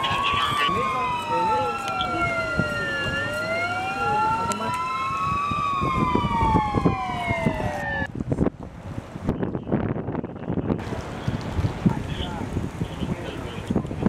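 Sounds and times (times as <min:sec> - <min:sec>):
emergency sirens wailing: 0:00.0 - 0:08.1
street noise: 0:00.0 - 0:14.0.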